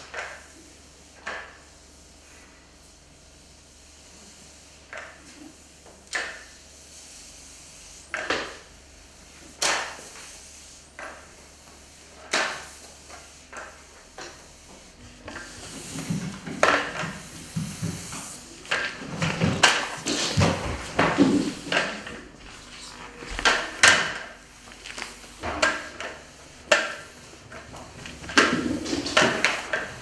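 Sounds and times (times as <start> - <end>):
mop scrubbing strokes: 0.1 - 30.0
mop knocking on floor tiles: 8.1 - 8.6, 11.0 - 30.0.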